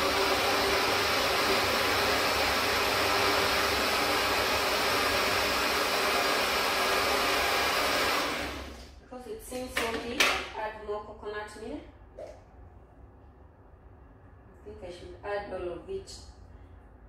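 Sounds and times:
electric blender running: 0.0s - 8.9s.

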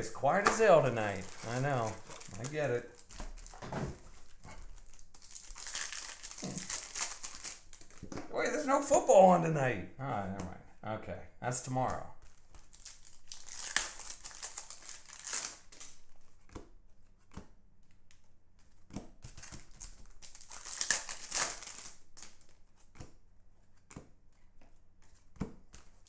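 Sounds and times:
cards being shuffled: 0.0s - 8.4s, 11.7s - 26.0s
foil wrappers crinkling and tearing: 0.2s - 8.2s, 12.2s - 16.0s, 19.2s - 22.6s.

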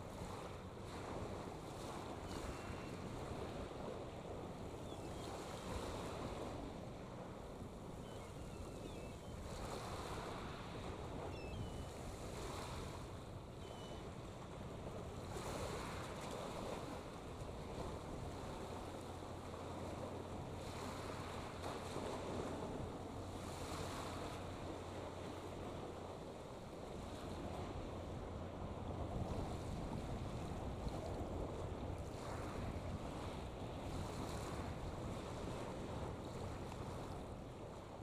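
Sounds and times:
wind gusting on microphone: 26.9s - 37.7s.

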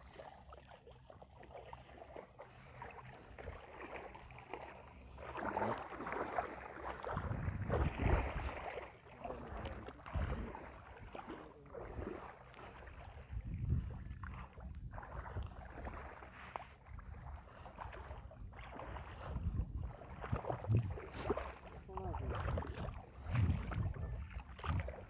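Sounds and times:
water sloshing and splashing: 0.0s - 25.0s
low microphone rumbles: 7.1s - 8.6s, 13.2s - 15.6s, 19.3s - 21.3s, 21.9s - 25.0s.

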